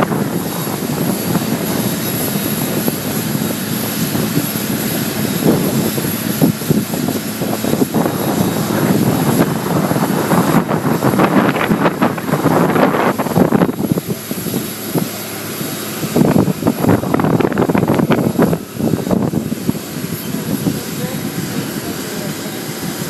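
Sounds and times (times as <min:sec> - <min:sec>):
aircraft engine noise: 0:00.0 - 0:23.0
voices: 0:16.6 - 0:23.0.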